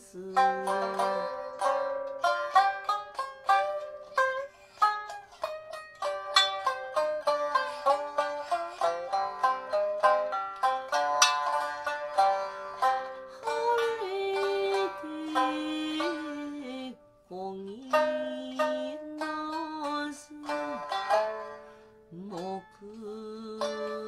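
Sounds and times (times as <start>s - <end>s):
woman singing: 0.0s - 1.6s, 13.3s - 21.2s, 22.1s - 24.0s
shamisen plucking: 0.0s - 24.0s.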